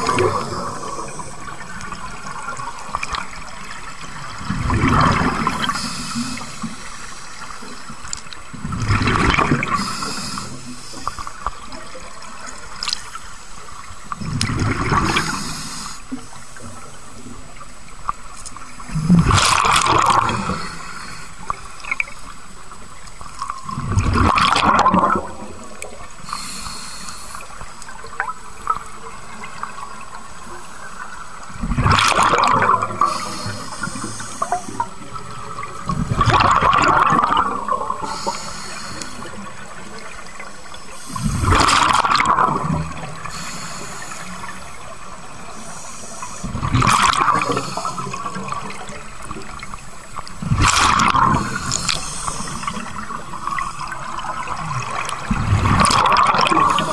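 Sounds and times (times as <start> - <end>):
bubbly exhaled air rushes: 0.0 - 1.7, 50.4 - 53.6
hiss of inhaling through regulator: 5.4 - 8.1, 9.6 - 11.5, 15.0 - 16.9, 20.3 - 21.6, 26.2 - 27.9, 32.9 - 35.0, 38.0 - 39.7, 40.5 - 41.8, 43.2 - 46.6, 47.3 - 48.7, 51.3 - 54.1.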